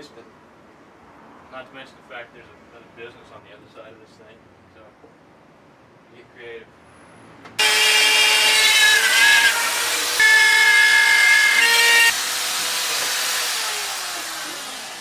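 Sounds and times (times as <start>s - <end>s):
power tool screeching whine: 7.6s - 15.0s.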